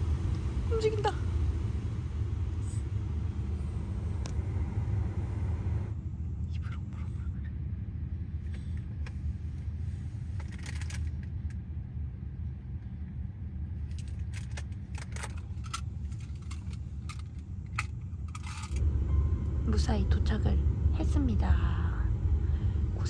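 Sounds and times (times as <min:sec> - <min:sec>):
car cabin road rumble: 0:00.0 - 0:23.0
light clicks and rattles: 0:10.3 - 0:11.6, 0:13.7 - 0:18.8.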